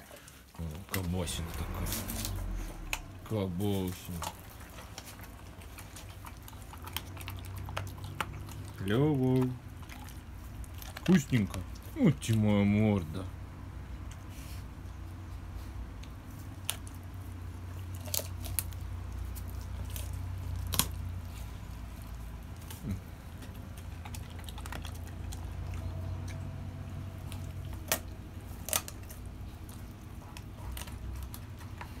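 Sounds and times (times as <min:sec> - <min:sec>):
bones cracking: 0:00.0 - 0:12.4, 0:16.4 - 0:32.0
dog chewing wetly: 0:00.0 - 0:32.0
steady low hum: 0:00.3 - 0:32.0.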